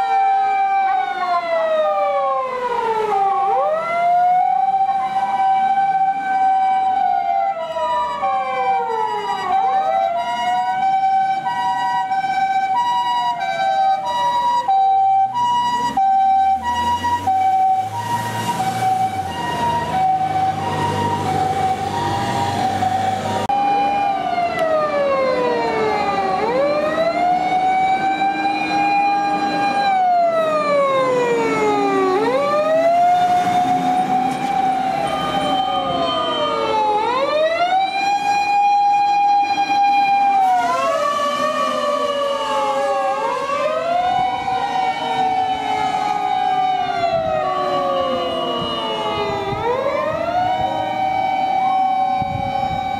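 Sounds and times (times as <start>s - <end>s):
electronic wail siren: 0.0s - 52.9s
two-tone hi-lo siren: 0.0s - 52.9s
vehicle engine and tyres passing: 15.1s - 23.5s, 25.5s - 37.2s.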